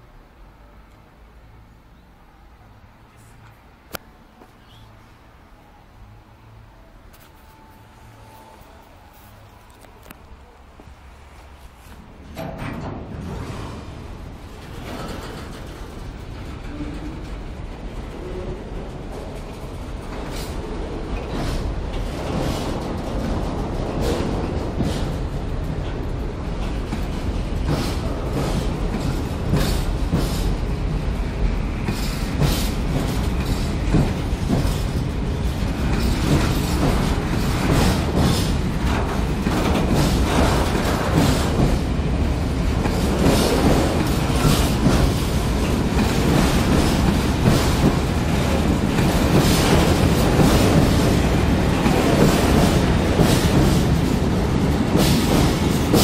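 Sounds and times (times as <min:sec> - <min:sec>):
freight train rumbling past: 0:00.0 - 0:56.0
wheels clattering over rail joints: 0:11.8 - 0:56.0.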